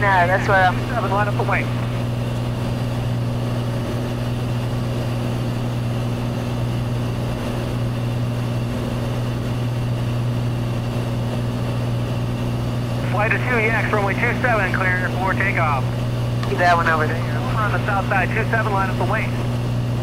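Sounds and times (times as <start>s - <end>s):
airplane engine droning: 0.0s - 20.0s.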